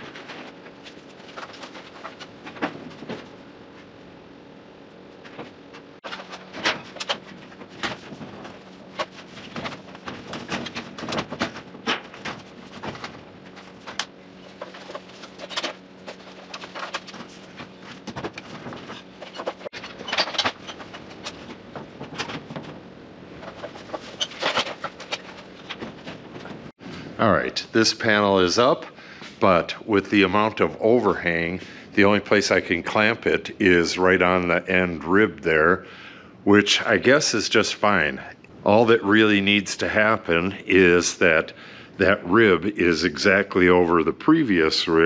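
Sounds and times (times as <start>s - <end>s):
steady low hum: 0.0s - 45.0s
stepladder clanking: 5.3s - 22.8s.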